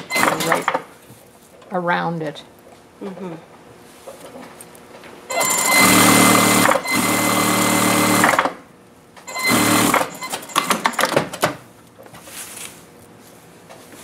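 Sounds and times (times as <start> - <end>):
sewing machine stitching: 5.3 - 8.5, 9.3 - 11.0.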